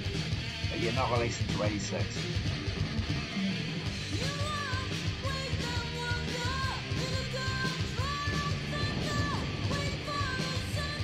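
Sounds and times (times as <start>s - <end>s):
heavy metal song: 0.0s - 11.0s
woman singing: 4.1s - 11.0s.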